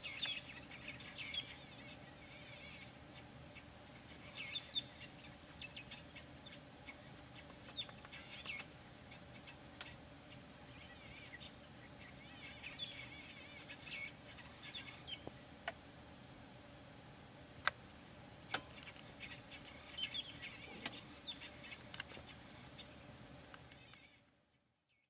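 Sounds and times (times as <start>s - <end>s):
faint low hum: 0.0s - 25.0s
small birds chirping: 0.0s - 25.0s
sharp clicks: 17.6s - 21.0s.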